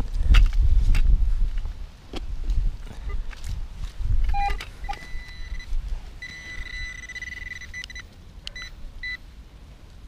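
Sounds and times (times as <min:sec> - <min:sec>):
wind on microphone: 0:00.0 - 0:07.0
metal detector beeping: 0:04.3 - 0:09.2.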